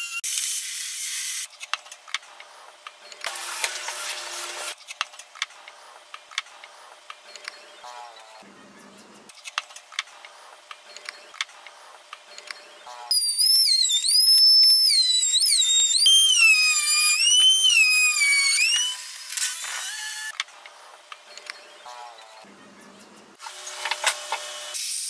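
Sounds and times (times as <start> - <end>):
router high-pitched whine: 13.1 - 20.3.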